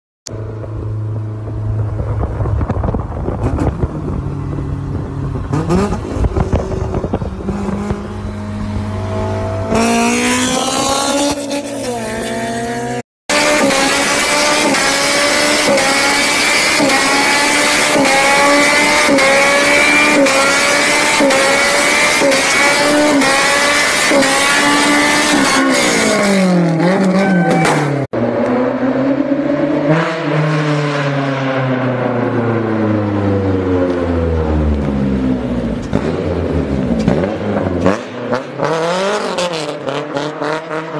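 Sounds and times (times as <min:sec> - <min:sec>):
car engine revving hard: 0:05.3 - 0:31.9, 0:35.4 - 0:40.9.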